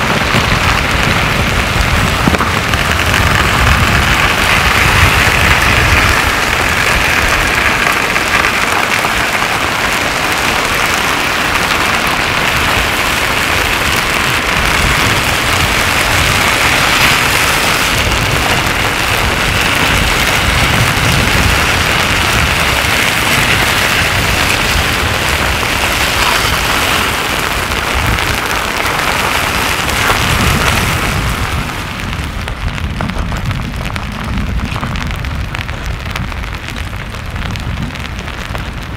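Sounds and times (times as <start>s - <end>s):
lava crust crackling and scraping: 0.0s - 38.9s.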